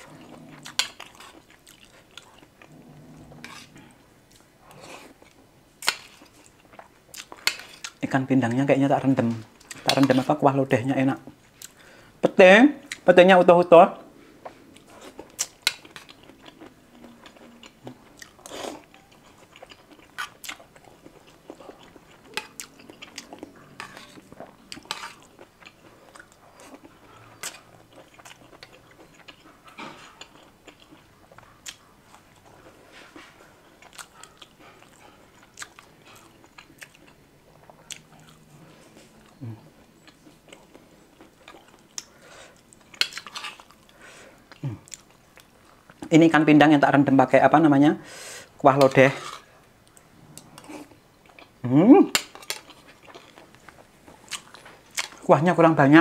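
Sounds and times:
person chewing and biting food: 0.0s - 8.0s, 14.8s - 45.5s, 49.9s - 55.2s.

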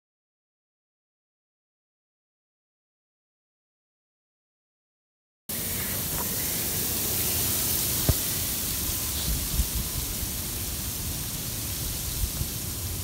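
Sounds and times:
wind blowing through trees: 5.5s - 13.0s
wind rumble on microphone: 8.0s - 13.0s.

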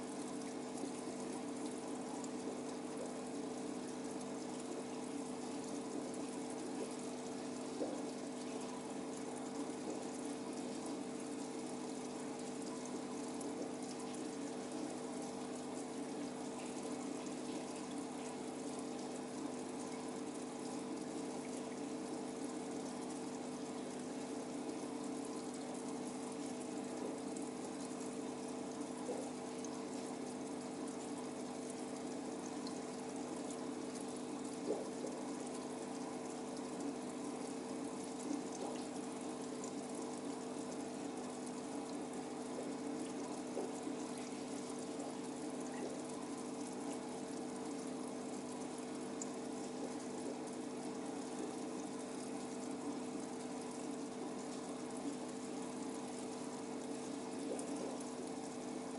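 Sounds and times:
aquarium pump humming: 0.0s - 58.9s
water running and splashing: 12.6s - 21.9s, 38.2s - 46.7s.

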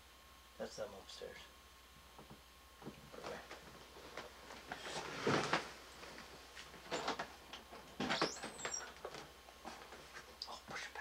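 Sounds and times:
rustles: 3.0s - 10.9s
high squeak: 8.1s - 8.9s.

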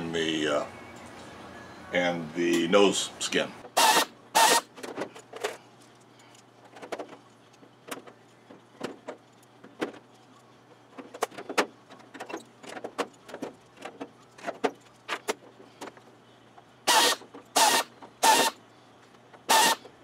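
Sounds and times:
pneumatic drill bursts: 3.7s - 4.7s, 16.8s - 18.6s, 19.4s - 19.9s.

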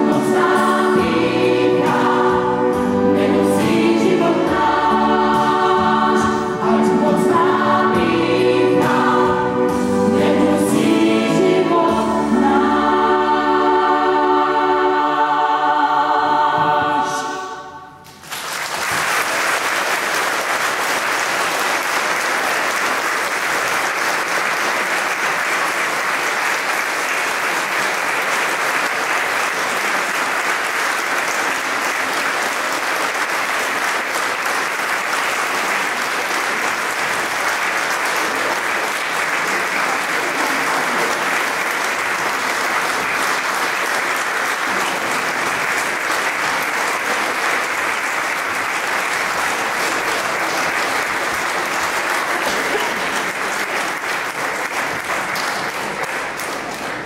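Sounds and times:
audience applauding: 18.0s - 57.0s.

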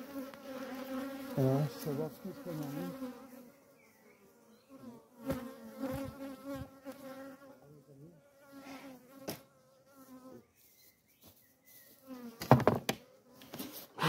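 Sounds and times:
bees buzzing: 0.0s - 10.5s.

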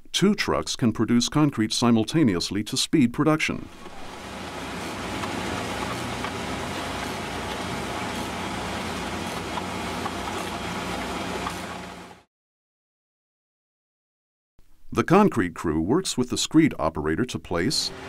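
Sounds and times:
concrete mixer truck running: 3.8s - 12.3s.

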